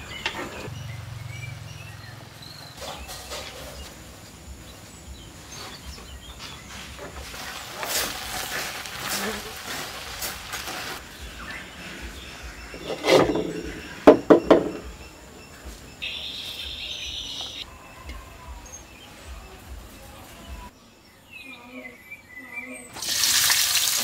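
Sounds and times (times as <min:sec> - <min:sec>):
rural outdoor background: 0:00.0 - 0:24.0
clay pots knocking on wood: 0:12.8 - 0:15.0.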